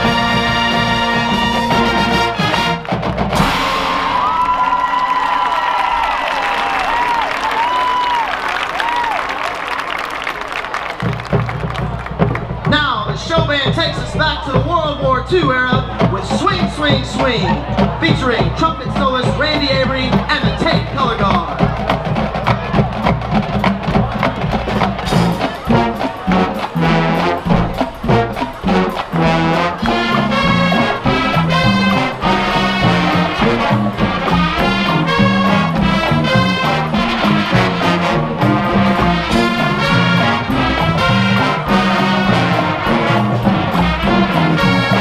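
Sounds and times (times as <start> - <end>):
brass section: 0.0 - 9.4, 24.2 - 45.0
drums and percussion: 0.0 - 45.0
marching band playing: 0.0 - 45.0.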